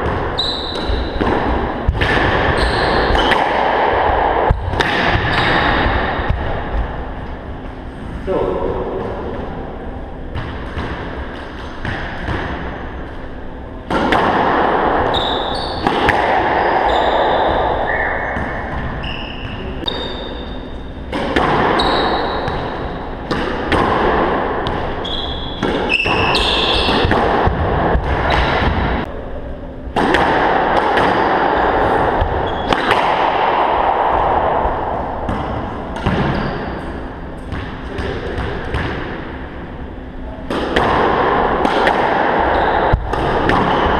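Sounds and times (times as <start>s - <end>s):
squash ball knocking off walls: 0.0s - 7.0s
sneakers squeaking on hardwood: 0.3s - 1.2s, 2.4s - 3.4s, 15.1s - 15.9s, 16.6s - 20.9s, 24.9s - 27.1s, 36.2s - 37.6s.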